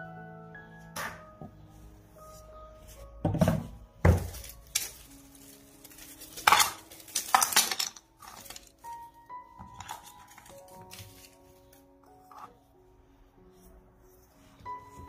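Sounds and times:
plastic bag crinkling: 4.2 - 9.0
wooden keys clattering: 6.0 - 9.0.

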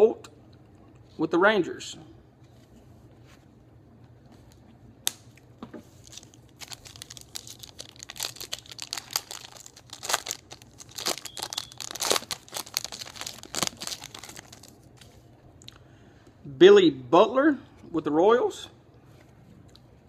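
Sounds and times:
foil wrapper crinkling: 6.0 - 15.1.

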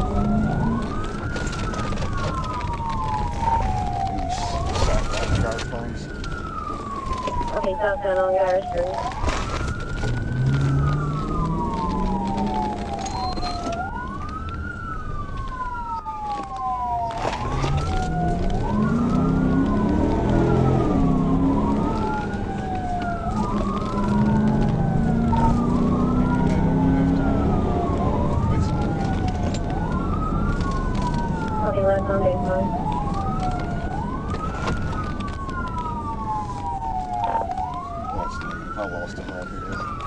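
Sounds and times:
car engine accelerating: 0.0 - 3.1, 9.1 - 14.9, 16.6 - 37.0
police siren wailing: 0.0 - 40.0
road noise: 0.0 - 40.0.

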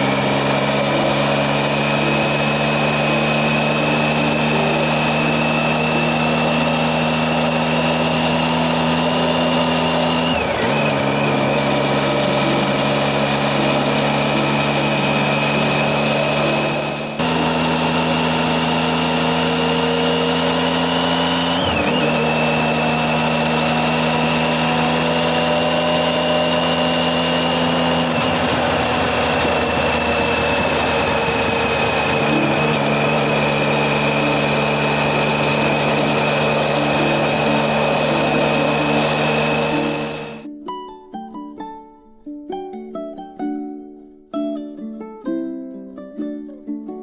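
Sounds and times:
steady high whine: 0.0 - 40.4
motorcycle engine cruising: 0.0 - 40.5.

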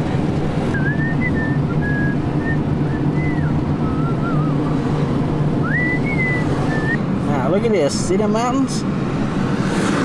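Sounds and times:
car engine and road noise: 0.0 - 10.0
person whistling a tune: 0.8 - 4.8, 5.6 - 7.0.

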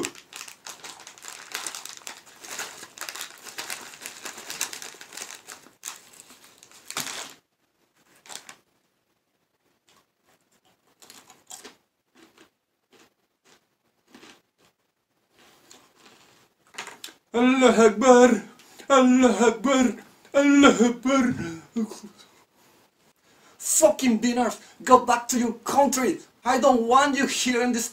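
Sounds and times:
plastic snack bag crinkling: 0.0 - 8.7, 9.8 - 17.2.

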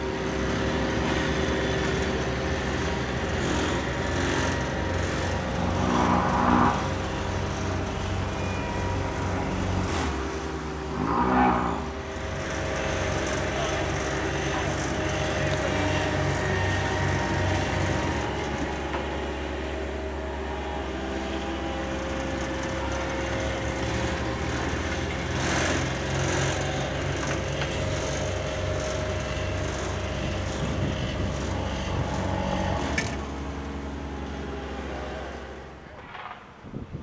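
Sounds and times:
diesel engines of paving machinery: 0.0 - 37.0
rush of noise: 8.3 - 27.4.

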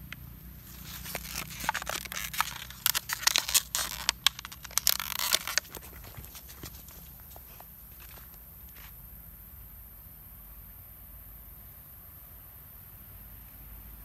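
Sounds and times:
plastic bottle crinkling: 0.6 - 8.2.

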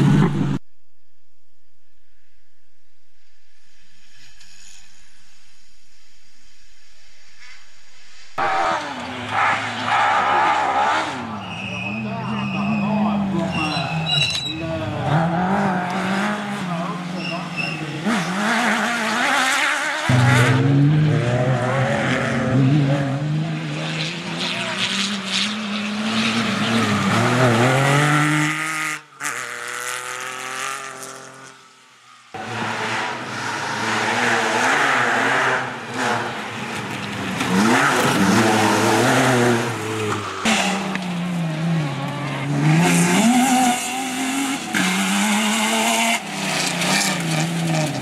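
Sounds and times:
buggy engine revving hard: 8.4 - 31.6, 32.4 - 36.7, 37.3 - 48.0
rally car engine at high revs: 8.4 - 31.7, 32.3 - 48.0.

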